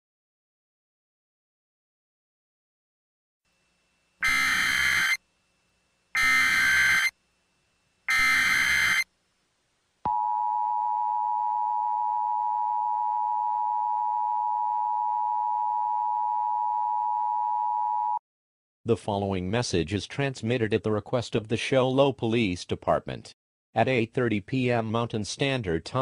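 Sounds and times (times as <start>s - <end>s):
screeching data bursts: 4.2s - 5.2s, 6.2s - 7.1s, 8.1s - 9.1s
two-tone attention signal: 4.2s - 5.2s, 6.2s - 7.1s, 8.1s - 9.0s.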